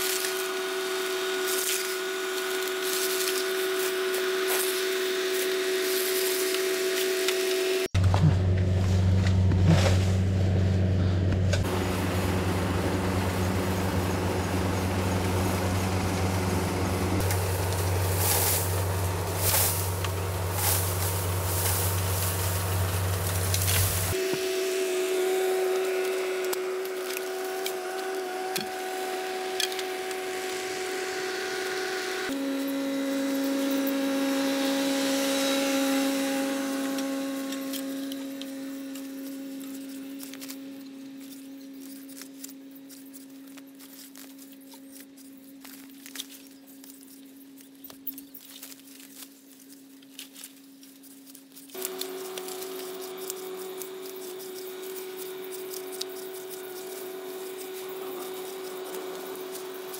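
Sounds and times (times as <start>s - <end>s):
power saw motor drone: 0.0s - 42.0s, 51.8s - 59.9s
high-pitched hum: 0.0s - 43.8s, 51.8s - 59.9s
bamboo cracking: 51.3s - 59.9s.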